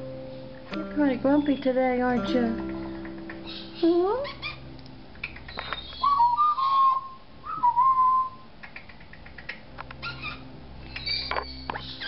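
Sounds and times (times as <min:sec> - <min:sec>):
parrot whistling: 0:03.3 - 0:04.6, 0:05.2 - 0:08.5, 0:10.0 - 0:12.0.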